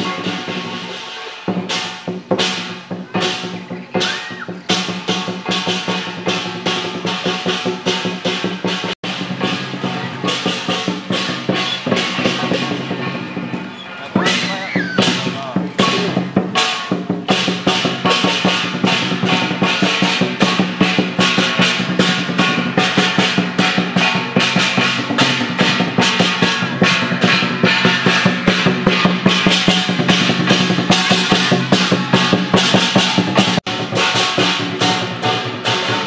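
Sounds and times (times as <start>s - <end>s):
big drum beating fast: 0.0s - 36.0s
hand cymbals clashing: 0.0s - 36.0s.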